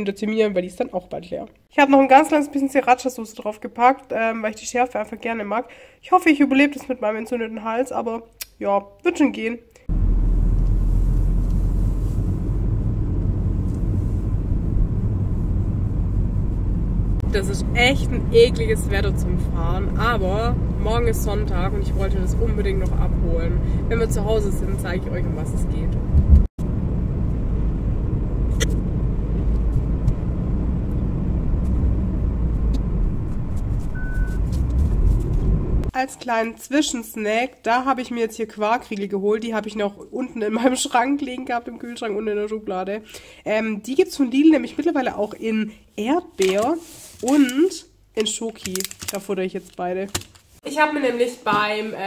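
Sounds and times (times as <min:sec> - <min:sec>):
car cabin road rumble: 0:09.9 - 0:35.9
short beep: 0:33.9 - 0:34.4.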